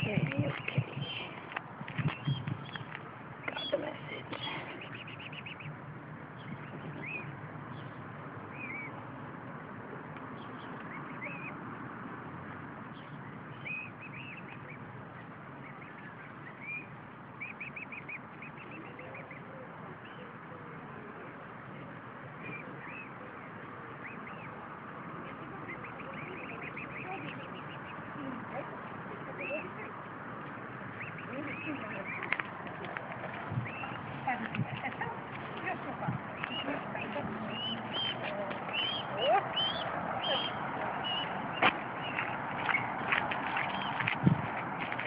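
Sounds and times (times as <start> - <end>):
cygnets peeping: 0.0 - 45.0.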